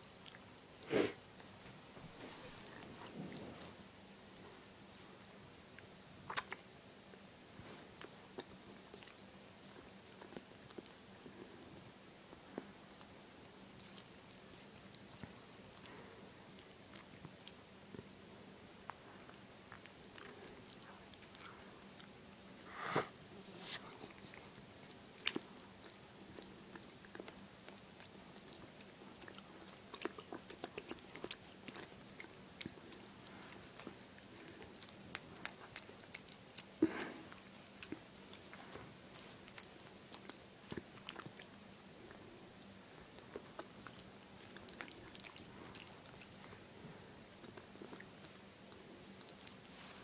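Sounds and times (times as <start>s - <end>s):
dog chewing with wet clicks: 12.4s - 18.1s, 24.4s - 49.9s.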